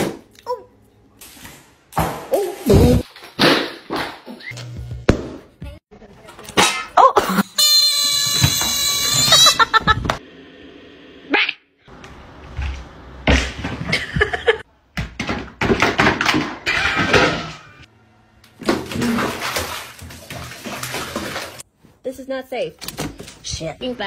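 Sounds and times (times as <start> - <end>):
music: 4.6 - 5.8.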